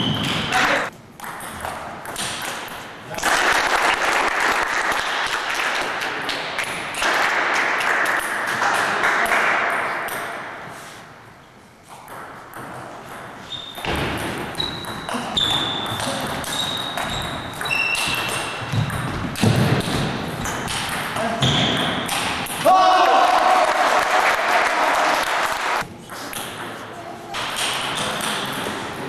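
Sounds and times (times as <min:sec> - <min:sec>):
applause: 0:03.2 - 0:06.4, 0:07.0 - 0:09.6, 0:23.0 - 0:25.8
table tennis ball rally: 0:12.0 - 0:29.0.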